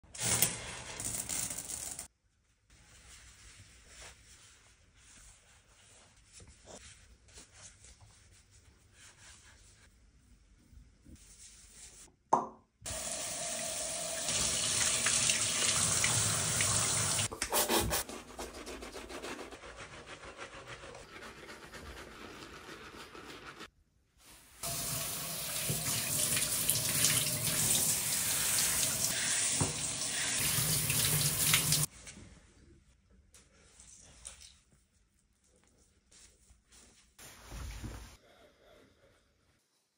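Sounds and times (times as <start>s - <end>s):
shower head spraying water: 12.9s - 18.0s, 24.6s - 31.9s.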